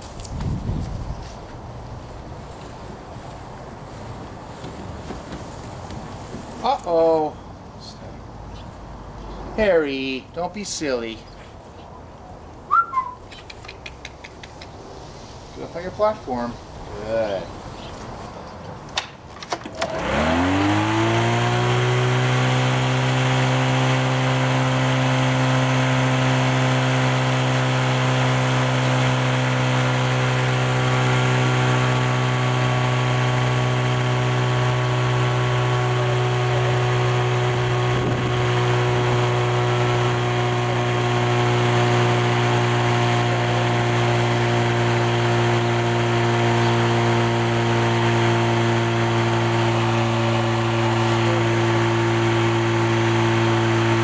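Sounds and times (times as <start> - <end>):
lawnmower engine running: 19.4 - 54.0.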